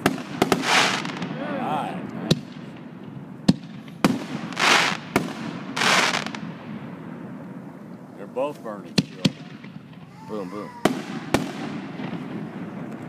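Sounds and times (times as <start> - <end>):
fireworks hissing bursts: 0.0 - 2.8, 3.6 - 6.5, 9.0 - 12.9
fireworks bangs: 0.0 - 7.6, 8.7 - 13.0.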